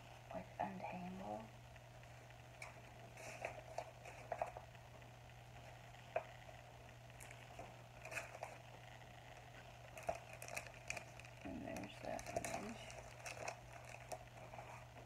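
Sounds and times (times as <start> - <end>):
low steady hum: 0.0 - 15.0
fabric and packaging rustling: 2.6 - 4.8, 7.2 - 8.8, 9.4 - 15.0.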